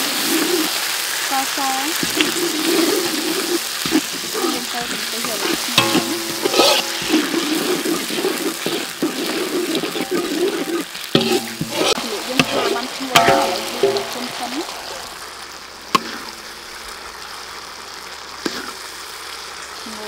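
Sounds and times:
sizzling in oil in a wok: 0:00.0 - 0:20.0
metal ladle scraping pan: 0:01.9 - 0:15.3, 0:16.0 - 0:16.7.

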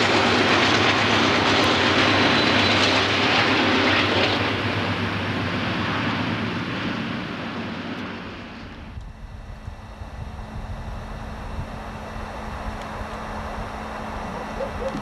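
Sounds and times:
diesel locomotive engine roar: 0:00.0 - 0:15.0.

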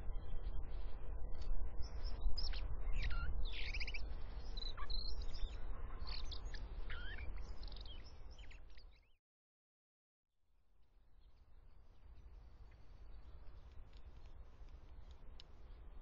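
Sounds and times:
birds chirping and calling: 0:01.8 - 0:08.6.

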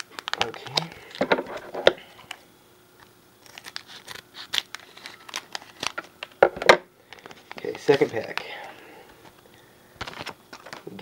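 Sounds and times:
plastic wrapper crinkling: 0:00.0 - 0:01.7, 0:03.4 - 0:06.5, 0:07.1 - 0:08.5, 0:10.0 - 0:11.0.

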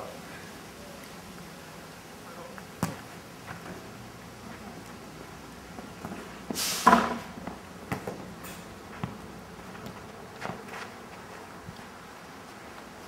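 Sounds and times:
ball being kicked: 0:02.8 - 0:03.1
loud burst of hiss: 0:06.5 - 0:07.2.

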